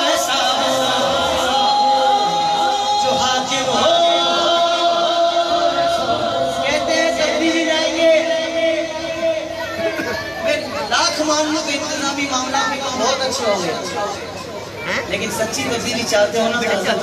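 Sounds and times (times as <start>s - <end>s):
voices joining in singing: 0.0s - 8.7s
man singing over loudspeaker: 0.0s - 9.8s, 10.4s - 14.4s, 15.0s - 17.0s.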